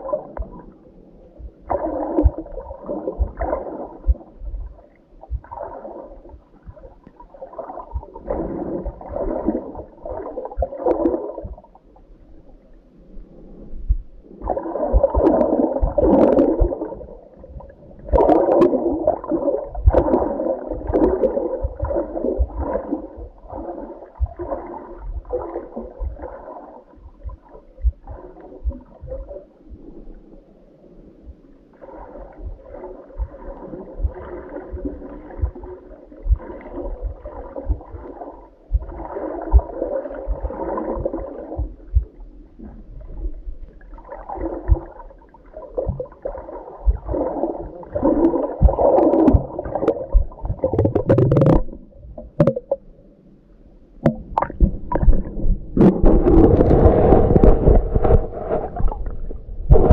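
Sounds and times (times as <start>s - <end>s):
underwater sloshing and gurgling: 0.0s - 59.9s
dull low knocks: 1.4s - 2.5s, 5.3s - 5.5s, 7.9s - 8.2s, 27.0s - 29.9s, 32.4s - 33.4s, 34.0s - 38.0s, 38.7s - 39.7s, 40.3s - 42.2s, 48.6s - 52.8s.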